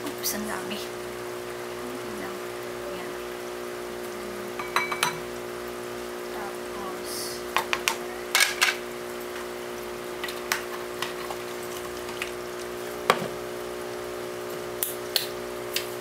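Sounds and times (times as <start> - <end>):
steady hum: 0.0 - 16.0
sauce bubbling in frying pan: 7.4 - 16.0.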